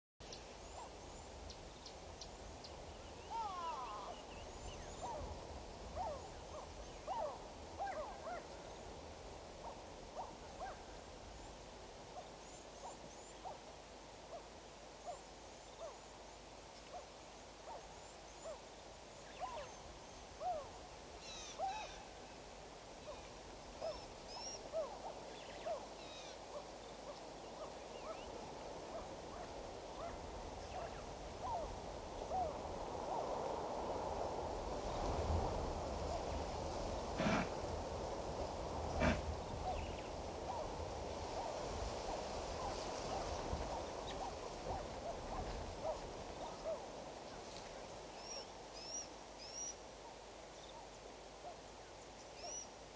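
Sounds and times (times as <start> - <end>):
faint steady hiss: 0.2 - 52.9
birds hooting: 3.3 - 4.5.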